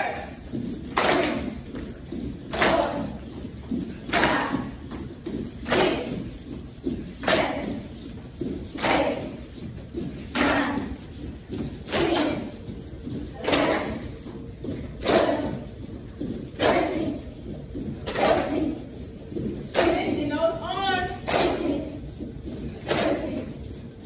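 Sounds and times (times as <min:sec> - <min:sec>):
light footsteps: 0:00.0 - 0:24.0.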